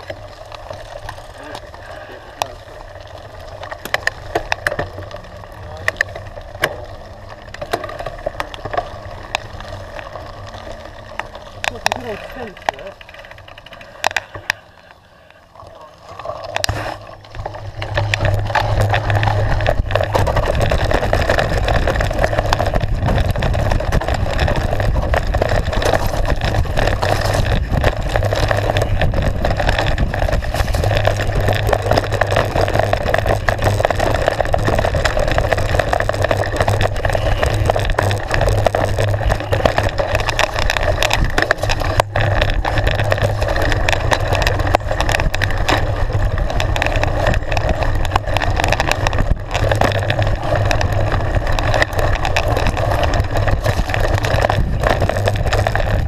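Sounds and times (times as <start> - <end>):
bike tyres rumbling over gravel: 0.0 - 56.0
wind buffeting microphone: 17.5 - 56.0.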